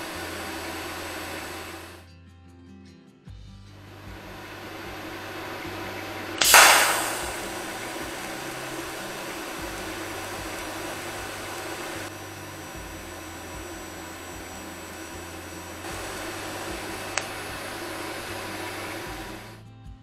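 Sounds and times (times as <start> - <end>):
welding arc hissing: 0.0 - 2.0, 3.8 - 19.6
sharp click: 4.1 - 12.2, 12.8 - 19.6.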